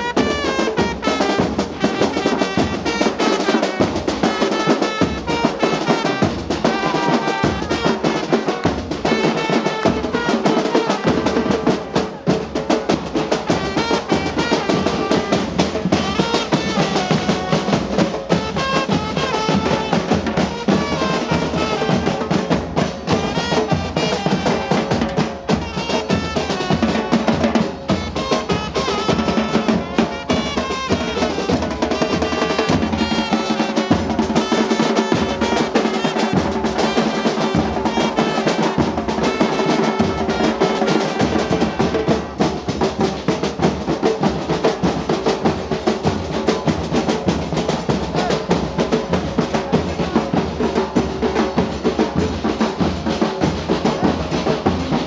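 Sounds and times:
trumpet melody: 0.0 - 43.0
bass drums with cymbals: 0.0 - 55.0.

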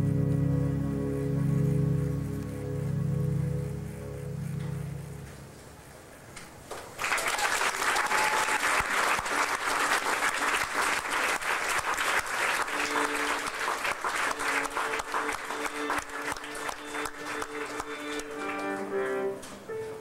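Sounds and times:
bowed string notes: 0.0 - 5.6
audience applause: 6.7 - 19.3.

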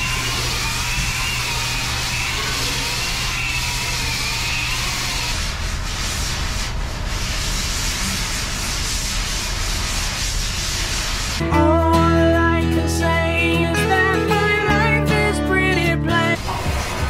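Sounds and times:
electric sander whirring: 0.0 - 5.4.

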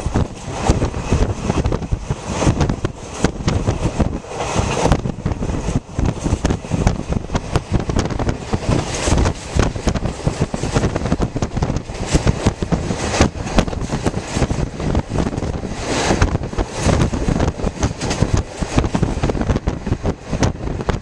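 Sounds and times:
train coach rumbling: 0.0 - 21.0
wind buffeting microphone: 0.0 - 21.0.

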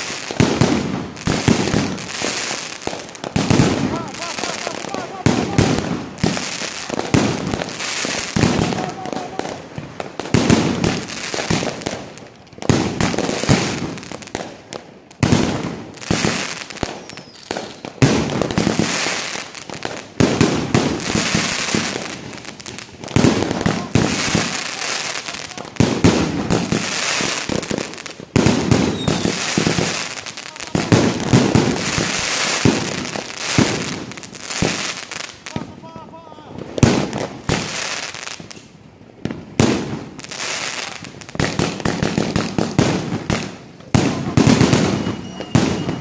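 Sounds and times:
firework bangs: 0.0 - 46.0
crackling hiss of stars: 1.0 - 14.7.

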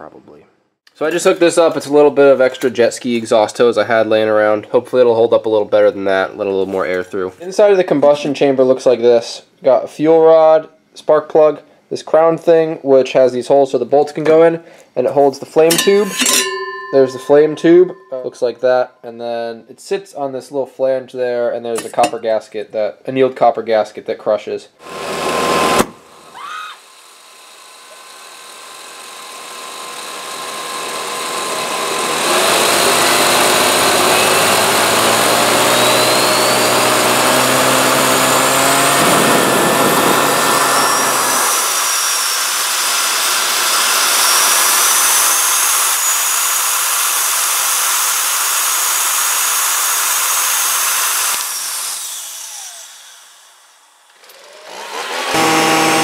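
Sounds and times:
leaf blower hum: 24.8 - 56.0
high turbine whine: 38.3 - 42.3.

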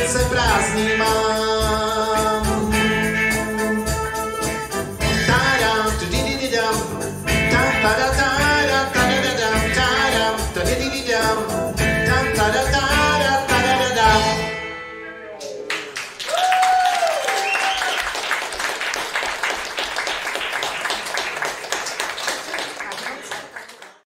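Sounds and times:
person singing: 0.0 - 14.6
live band playing: 0.0 - 16.2
audience applauding: 15.6 - 24.0
drawn-out cheer: 16.2 - 18.4.

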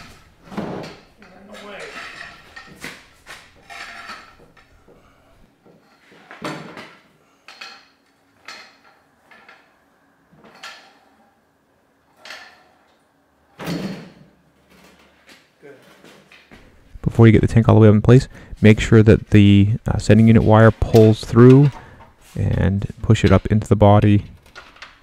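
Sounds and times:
metallic knocks and clanks: 0.0 - 5.8.

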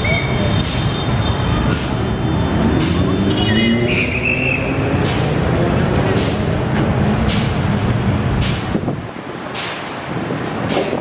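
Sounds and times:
truck diesel engine rumbling: 0.0 - 11.0.

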